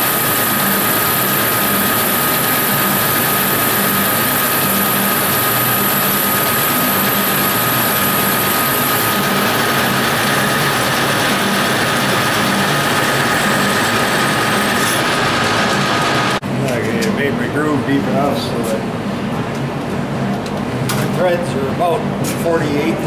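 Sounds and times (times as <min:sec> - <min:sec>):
metal lathe whine: 0:00.0 - 0:16.4.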